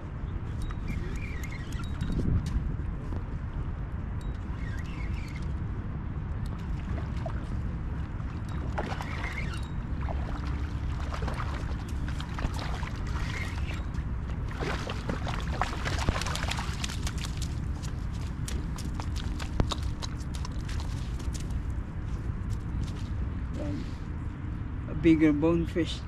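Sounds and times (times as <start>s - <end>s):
water lapping at shoreline: 6.5s - 21.5s.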